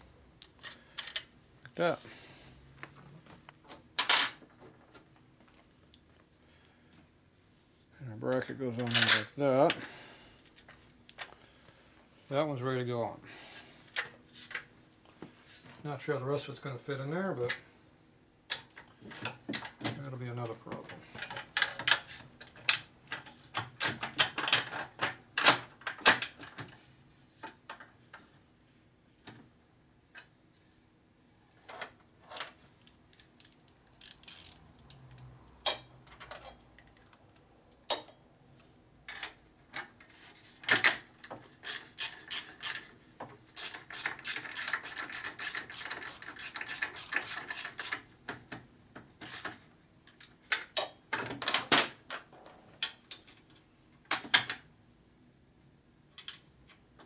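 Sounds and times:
metal parts clinking: 0:08.8 - 0:09.3, 0:33.2 - 0:36.6, 0:43.6 - 0:48.0, 0:49.2 - 0:49.5
ratchet wrench clicking: 0:33.4 - 0:35.3, 0:41.6 - 0:42.8, 0:43.6 - 0:48.0, 0:49.2 - 0:49.5.

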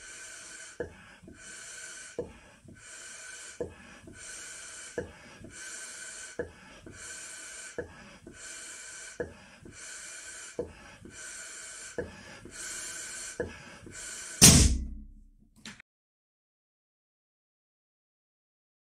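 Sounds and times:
balloon bursting with loud bang: 0:14.4 - 0:15.1.

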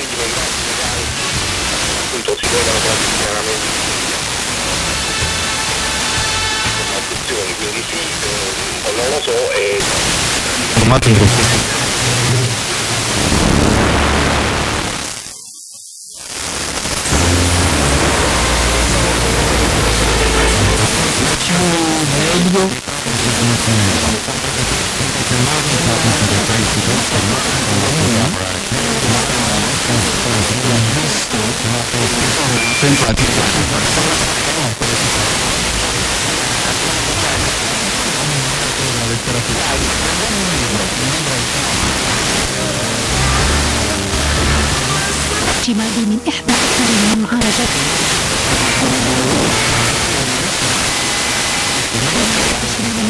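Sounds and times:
faint distant radio station: 0:00.0 - 0:53.0
radio static hiss: 0:00.0 - 0:53.0.

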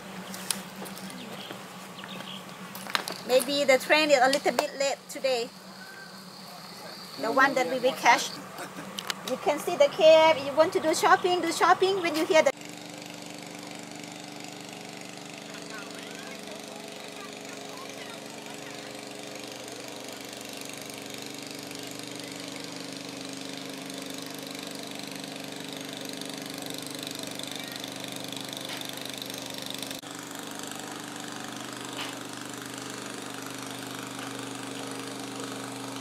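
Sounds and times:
engine droning steadily: 0:00.0 - 0:36.0.

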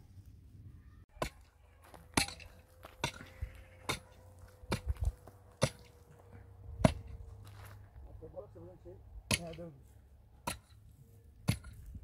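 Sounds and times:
hand tool striking: 0:01.2 - 0:06.0, 0:09.3 - 0:09.7, 0:10.4 - 0:10.8, 0:11.4 - 0:12.0.

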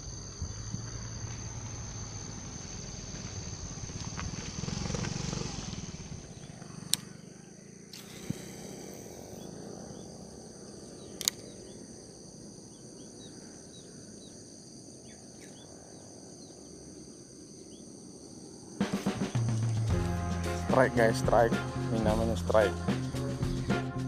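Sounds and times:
high-pitched insect chorus: 0:00.0 - 0:24.0
faint bird chirps: 0:06.2 - 0:17.9
sharp click: 0:11.2 - 0:11.5.

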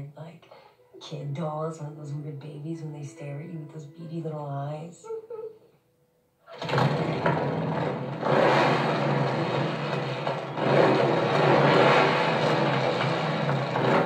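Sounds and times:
motorcycle engine revving: 0:06.5 - 0:14.0.

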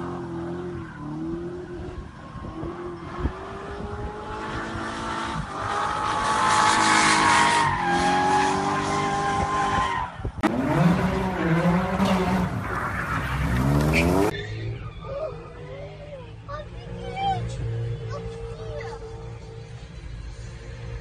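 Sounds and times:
car engine revving high: 0:00.0 - 0:14.3
second car engine revving: 0:10.4 - 0:14.8
tyres squealing: 0:11.1 - 0:15.5.

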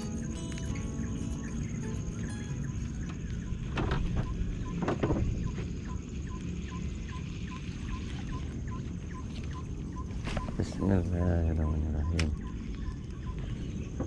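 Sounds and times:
open-air background: 0:00.0 - 0:14.0.

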